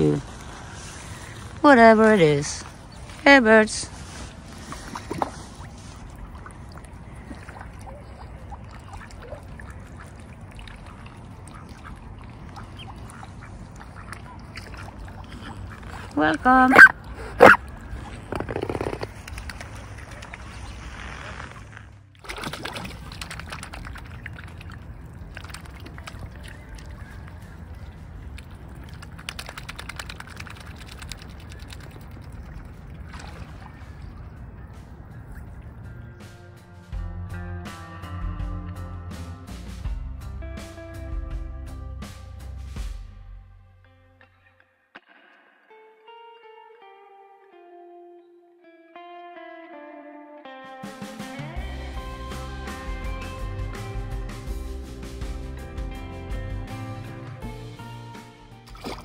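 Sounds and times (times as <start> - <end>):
swan dabbling in water: 4.4 - 35.8, 58.6 - 59.0
ducks quacking: 7.3 - 21.3.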